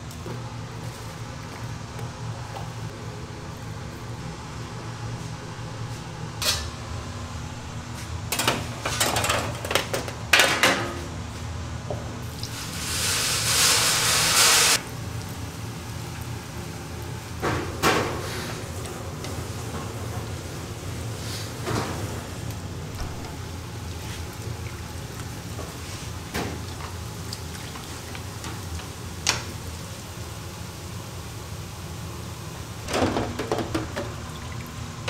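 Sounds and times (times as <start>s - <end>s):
kitchen equipment hum: 0.0s - 35.0s
metal trays clattering on rack: 8.3s - 11.1s
loud hiss: 12.6s - 14.8s.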